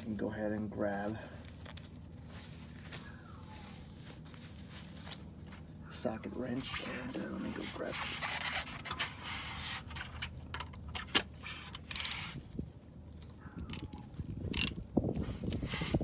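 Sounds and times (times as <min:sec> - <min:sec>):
ratchet wrench clicks: 0:11.8 - 0:12.2, 0:13.7 - 0:13.9, 0:14.5 - 0:14.8
metal socket clinks: 0:13.6 - 0:14.8.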